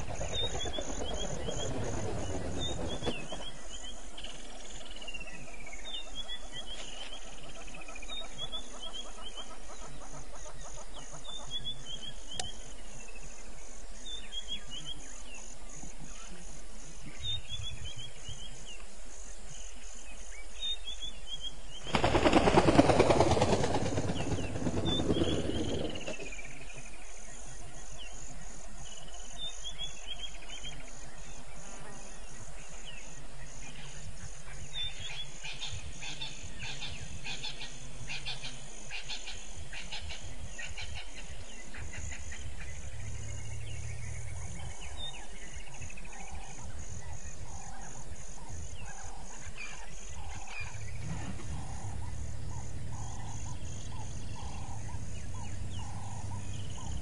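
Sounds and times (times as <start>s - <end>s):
pulsing insect chorus: 0.0s - 57.0s.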